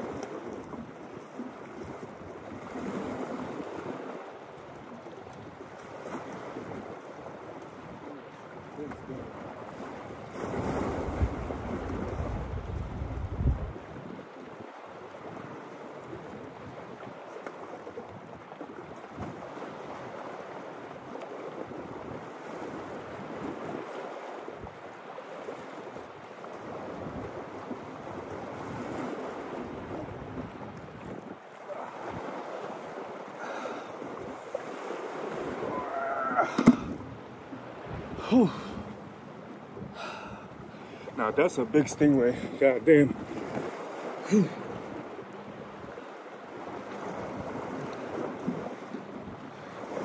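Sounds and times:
small waves washing ashore: 0.0 - 50.0
wind on microphone: 4.8 - 20.2, 25.9 - 41.4, 42.2 - 50.0.

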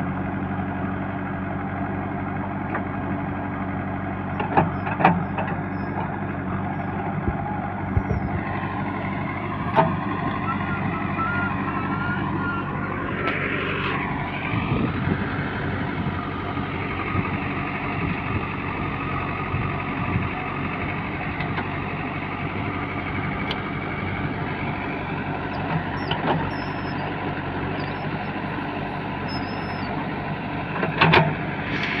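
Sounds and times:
diesel engine running: 0.0 - 32.0
backhoe digging soil: 2.6 - 11.1, 12.8 - 19.2, 22.8 - 32.0.

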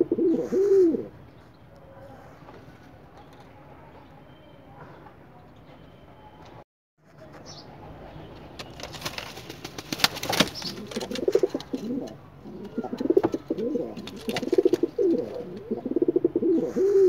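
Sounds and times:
pigeon cooing: 0.0 - 1.1, 10.6 - 17.0.

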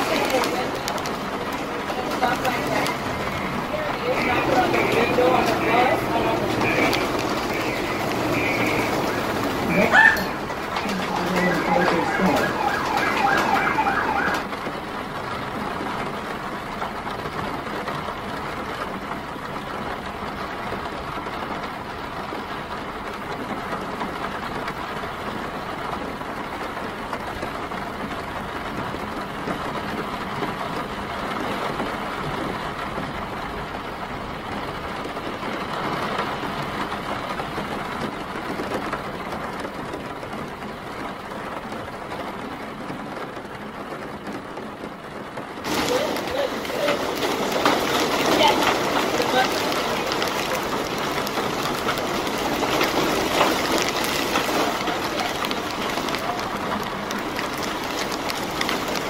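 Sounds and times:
city traffic rumble: 0.0 - 59.0
steady rain: 0.0 - 59.0
siren wailing: 3.2 - 14.6.

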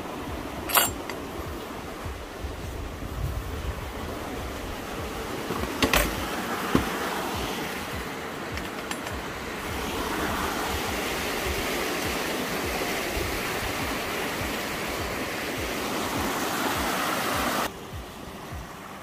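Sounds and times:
stream rushing over rocks: 0.0 - 19.0.

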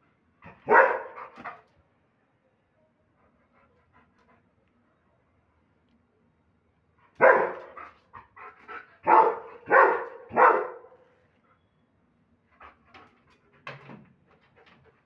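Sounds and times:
dog barking loudly: 0.5 - 1.4, 7.2 - 7.8, 9.0 - 11.0.

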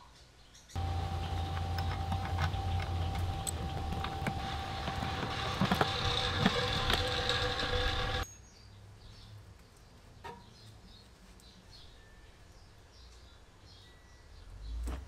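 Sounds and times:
small birds chirping: 0.0 - 15.0
hand tool clicks and clatter: 0.8 - 8.2.

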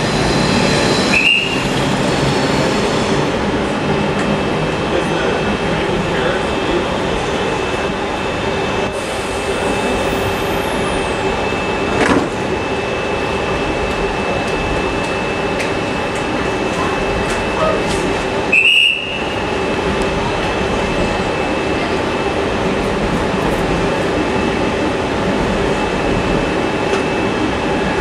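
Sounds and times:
electric trains humming: 0.0 - 28.0
loud high squeal: 0.1 - 2.5.

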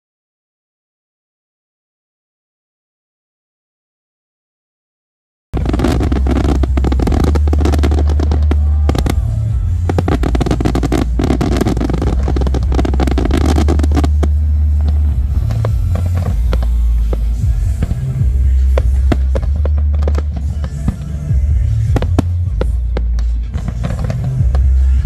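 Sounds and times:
fireworks popping and crackling: 5.6 - 25.0
loud music with heavy bass: 5.6 - 25.0.

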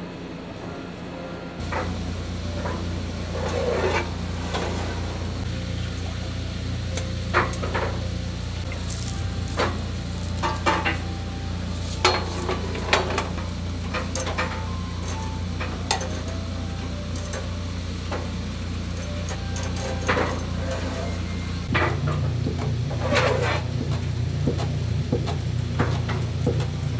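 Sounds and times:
low hum: 0.0 - 25.1
fish sizzling on a grill: 1.6 - 26.9
tongs clinking on metal rack: 6.9 - 22.2.

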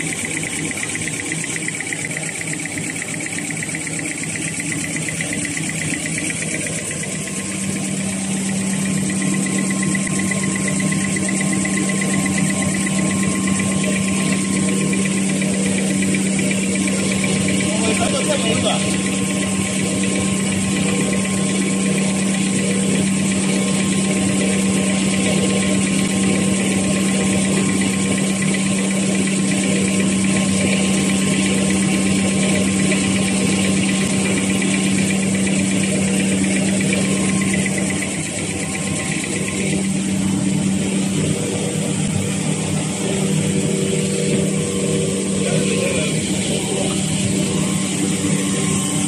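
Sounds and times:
low hum: 0.0 - 49.0
machine running: 0.0 - 49.0.

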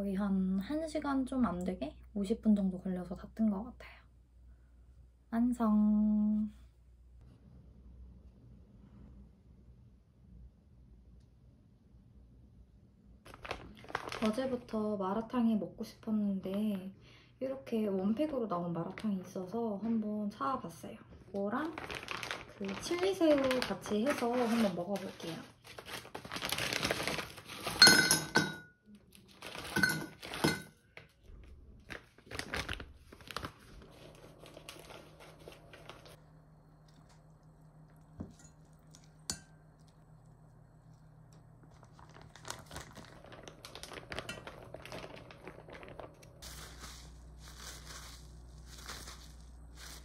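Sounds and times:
plastic packet crinkling and tearing: 13.3 - 14.7, 21.4 - 27.8, 29.1 - 30.4, 31.8 - 36.2, 41.6 - 50.0
paper towel crinkling: 13.3 - 14.8, 21.4 - 27.8, 29.1 - 30.5, 31.8 - 36.3, 41.6 - 50.0.

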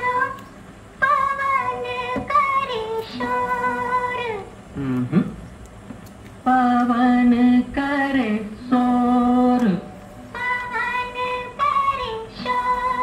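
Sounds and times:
old film song from cassette: 6.5 - 13.0.

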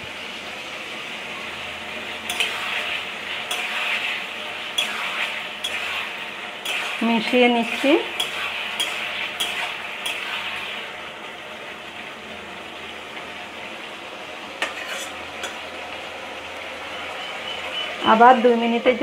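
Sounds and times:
vegetables sizzling in a pan: 0.0 - 19.0
spatula scraping and clinking pan: 2.3 - 2.9, 3.5 - 10.6, 14.6 - 15.6.

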